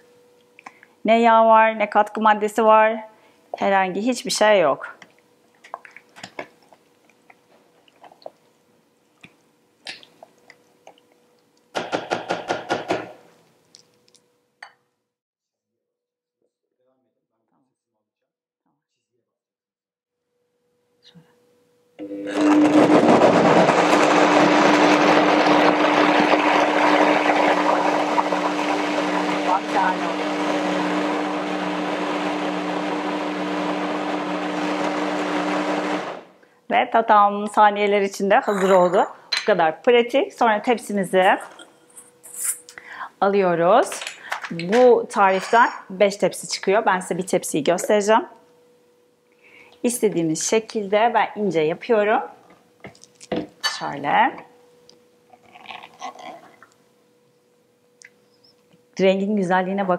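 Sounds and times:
blender running: 0:22.0 - 0:36.3.

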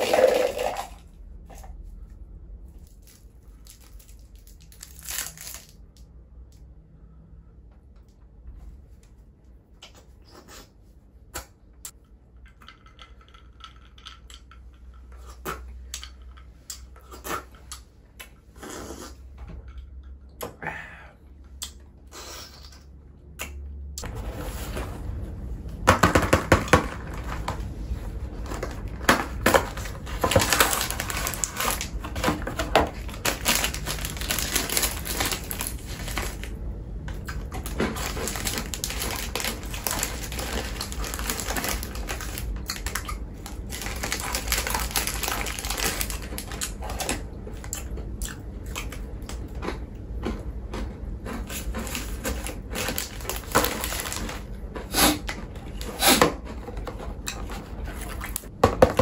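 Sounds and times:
packaging crackling: 0:02.9 - 0:05.9, 0:28.3 - 0:36.6, 0:37.2 - 0:47.2, 0:51.5 - 0:54.6.

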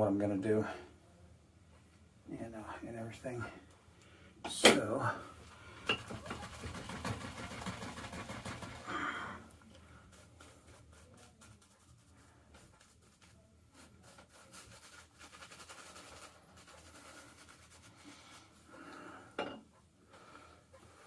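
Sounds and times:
shaving brush scrubbing lather: 0:06.0 - 0:08.9, 0:10.0 - 0:18.6.

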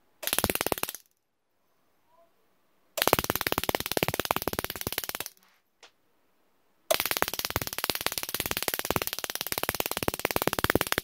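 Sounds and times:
snapping electric sparks: 0:00.2 - 0:01.1, 0:03.0 - 0:05.4, 0:06.9 - 0:11.0.

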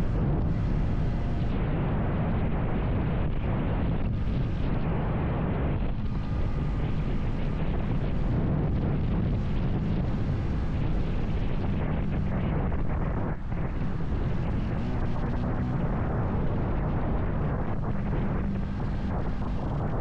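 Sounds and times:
road noise: 0:00.0 - 0:20.0
wind buffeting microphone: 0:00.0 - 0:20.0
motorcycle engine: 0:05.9 - 0:20.0.

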